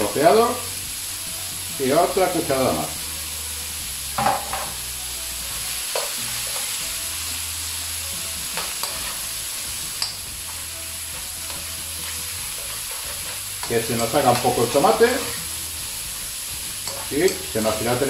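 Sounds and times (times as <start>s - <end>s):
food sizzling in frying pan: 0.0s - 18.0s
metal spoon scraping pan: 11.4s - 15.6s, 16.8s - 17.5s.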